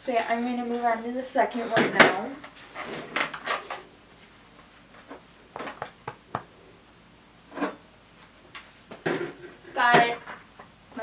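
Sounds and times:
objects knocking and clicking: 5.6 - 6.5.

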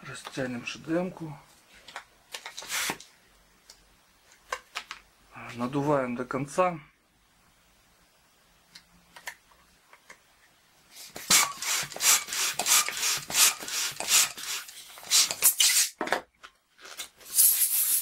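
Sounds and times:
balloon pump strokes: 11.1 - 16.0, 17.2 - 18.0.

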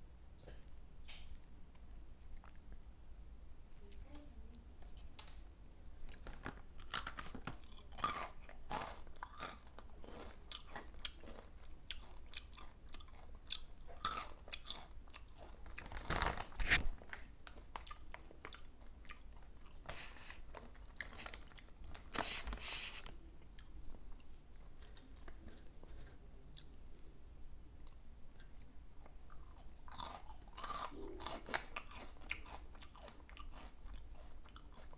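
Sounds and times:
crunching and chewing chips: 6.1 - 26.8, 27.8 - 34.9.

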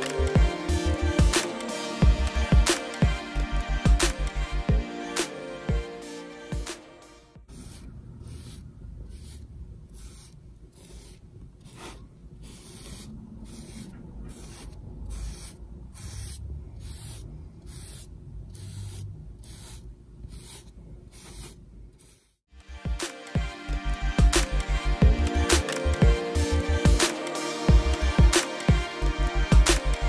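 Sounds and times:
paintbrush bristles rasping: 7.5 - 22.4.

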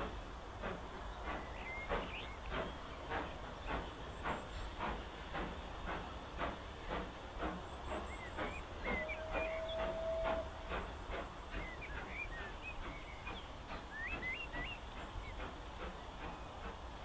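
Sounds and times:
steam locomotive exhaust beats: 0.0 - 17.0
small birds singing: 0.9 - 4.7, 7.6 - 10.2, 11.4 - 16.7.

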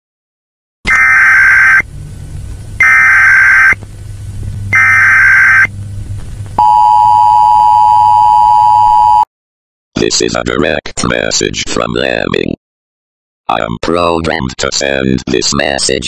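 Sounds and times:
electronic data bursts: 0.9 - 1.9, 2.8 - 3.8, 4.7 - 5.8
two-tone attention signal: 4.7 - 5.7.

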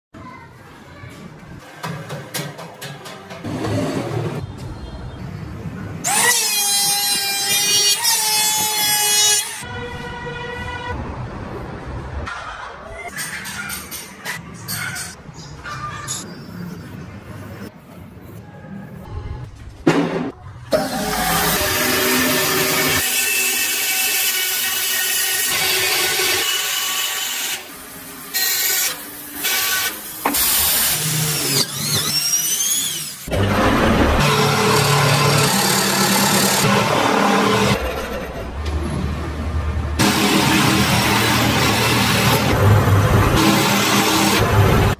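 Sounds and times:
bandsaw cutting wood: 20.8 - 27.7, 28.3 - 37.8
scroll saw cutting wood: 28.3 - 38.3.

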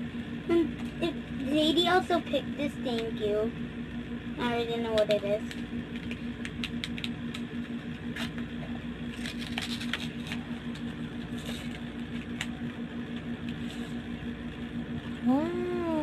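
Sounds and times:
steady low hum: 0.0 - 16.0
paper envelope crackling: 5.4 - 14.0.

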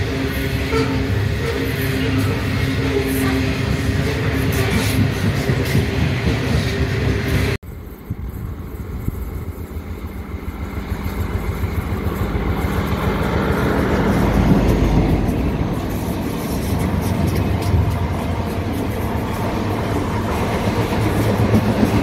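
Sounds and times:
diesel train engine: 0.0 - 22.0
train wheels rolling: 0.0 - 22.0
freight wagons rolling past: 7.4 - 22.0.

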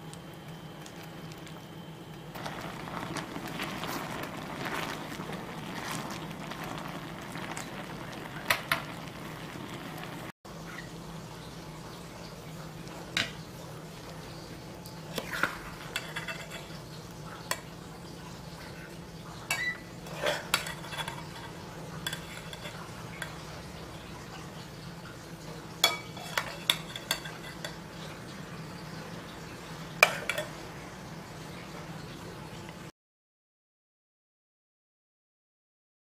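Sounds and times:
metal spoon clinking on pot: 15.9 - 16.8, 19.5 - 23.4, 25.8 - 27.8, 30.0 - 30.6.

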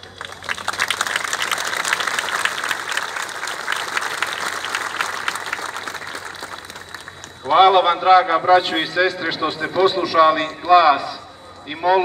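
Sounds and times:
large crowd applauding: 0.0 - 7.8.

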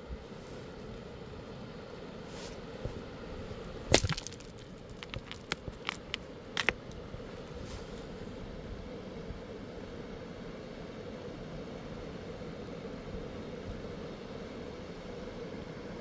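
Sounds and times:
river stones clacking together: 3.9 - 7.0.

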